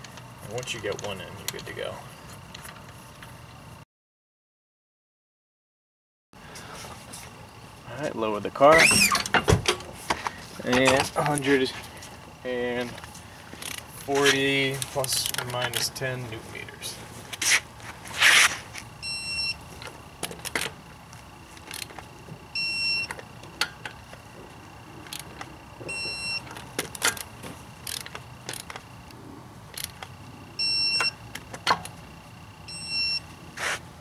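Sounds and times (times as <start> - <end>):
torque wrench beeping: 19.0 - 19.6, 22.5 - 23.2, 25.9 - 28.6, 30.6 - 31.2, 32.6 - 33.3.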